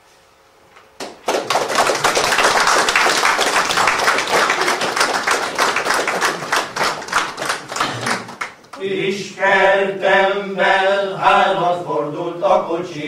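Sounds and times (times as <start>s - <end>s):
audience applauding: 1.0s - 8.8s.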